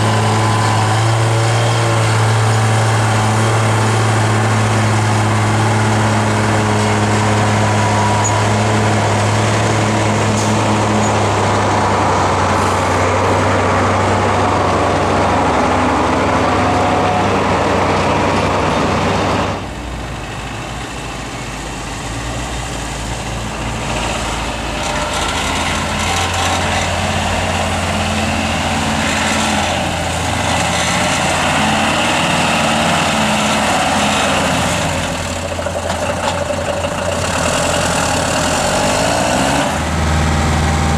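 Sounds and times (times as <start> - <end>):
quieter truck engine revving: 0.0 - 40.9
truck engine under load: 0.0 - 40.9.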